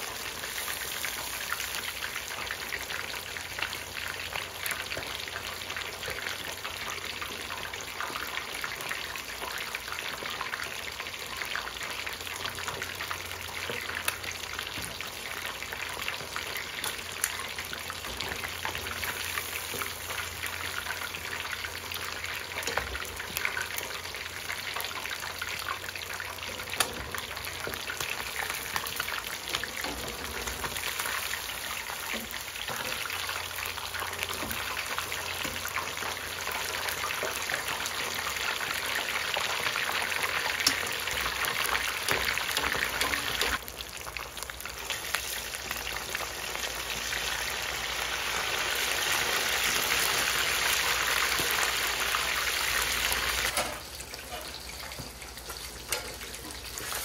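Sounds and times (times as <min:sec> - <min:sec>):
fish deep-frying in hot oil: 0:00.0 - 0:57.0.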